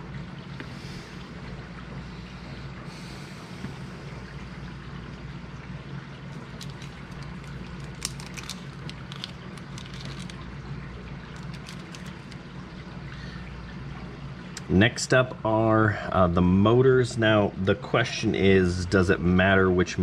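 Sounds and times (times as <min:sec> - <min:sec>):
steady background hum and hiss: 0:00.0 - 0:20.0
plastic bag crinkling: 0:06.4 - 0:10.5, 0:11.2 - 0:12.4
small parts clicking: 0:06.5 - 0:10.4, 0:11.4 - 0:12.4.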